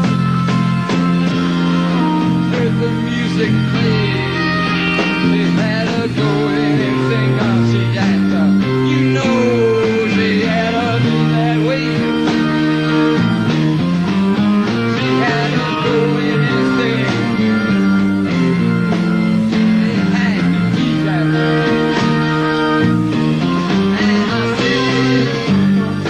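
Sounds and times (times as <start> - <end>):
bass guitar: 0.0 - 26.0
electric guitars holding chords: 0.0 - 26.0
steady drum beat: 0.0 - 26.0.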